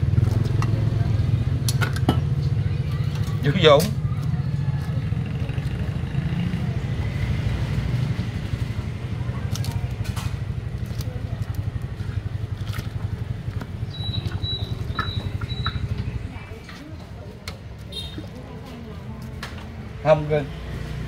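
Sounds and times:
short high-pitched chirps: 0:13.9 - 0:15.9.

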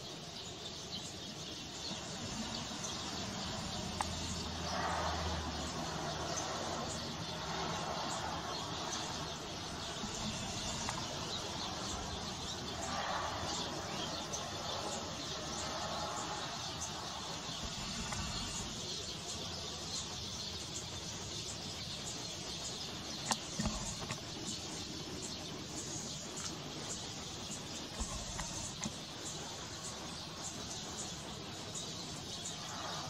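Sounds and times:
small birds chirping: 0:00.0 - 0:33.0
steady hiss: 0:00.0 - 0:33.0.

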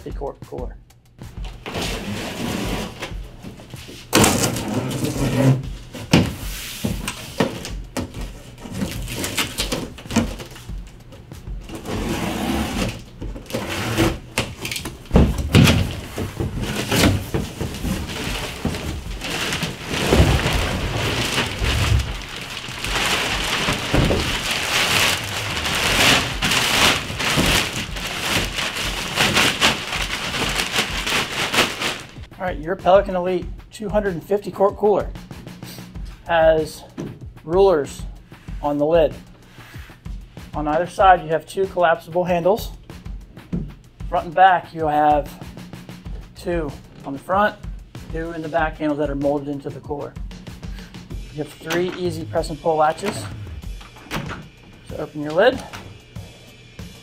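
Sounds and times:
cardboard box flaps scraping: 0:01.6 - 0:03.2, 0:11.7 - 0:14.3, 0:15.1 - 0:32.3
plastic wrap crinkling: 0:07.0 - 0:10.7, 0:12.8 - 0:32.3.

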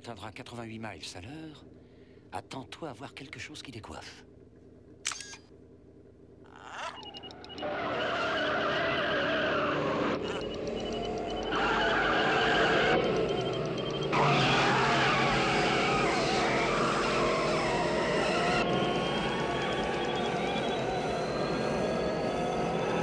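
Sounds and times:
car engine revving: 0:07.5 - 0:23.0
tyres squealing: 0:07.6 - 0:10.6, 0:11.3 - 0:21.0.

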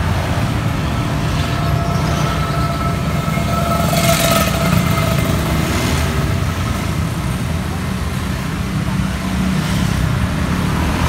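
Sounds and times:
low traffic rumble: 0:00.0 - 0:11.0
motorcycle passing: 0:00.1 - 0:07.6.

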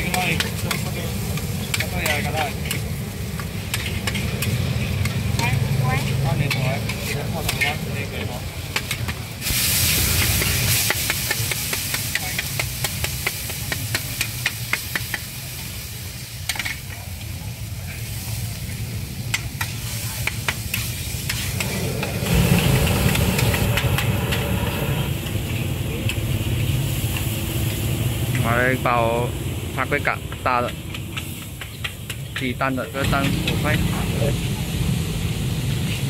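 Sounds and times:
food sizzling: 0:00.0 - 0:29.3
street traffic and motorbikes: 0:00.0 - 0:36.0
metal spatula scraping wok: 0:20.7 - 0:25.6.

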